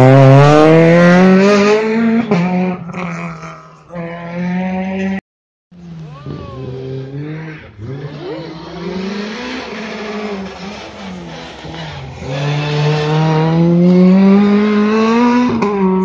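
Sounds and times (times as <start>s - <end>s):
rally car engine accelerating: 0.0s - 5.2s, 5.8s - 16.0s.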